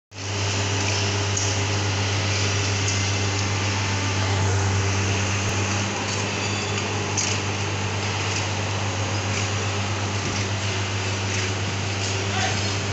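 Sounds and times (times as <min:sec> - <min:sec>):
track-laying machine engine humming: 0:00.1 - 0:12.9.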